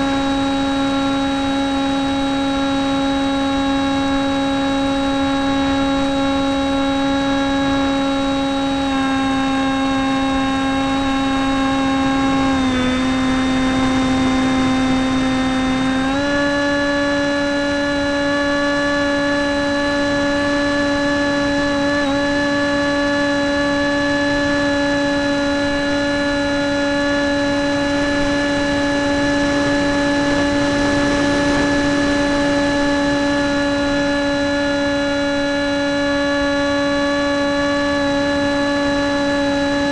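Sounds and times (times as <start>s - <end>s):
model airplane motor droning: 0.0s - 39.9s
wind rush: 27.6s - 34.2s.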